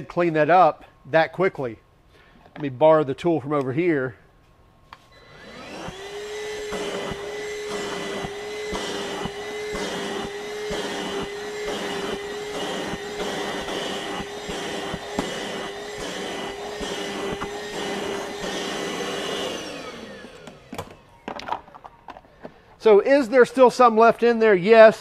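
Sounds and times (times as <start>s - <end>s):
vacuum nozzle on carpet: 5.1s - 21.0s
wet dry vacuum whining: 5.1s - 21.5s.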